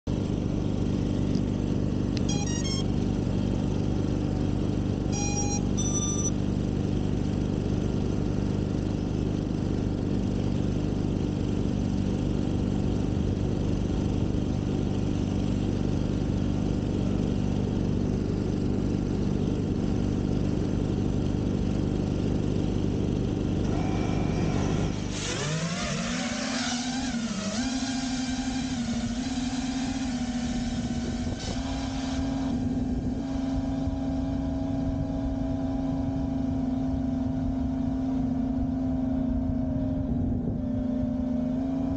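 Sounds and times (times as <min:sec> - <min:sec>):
drone motors whining: 0:02.1 - 0:03.3, 0:05.1 - 0:06.5, 0:23.6 - 0:32.7
short electronic beeps: 0:02.2 - 0:03.0, 0:05.1 - 0:06.4.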